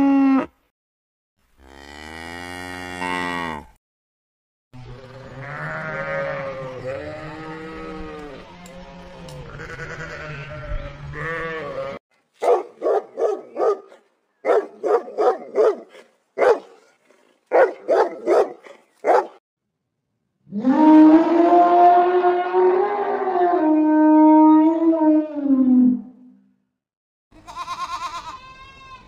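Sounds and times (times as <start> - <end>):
sheep bleating: 5.0 - 12.0, 27.4 - 29.0
dog barking: 12.4 - 16.9, 17.5 - 19.4.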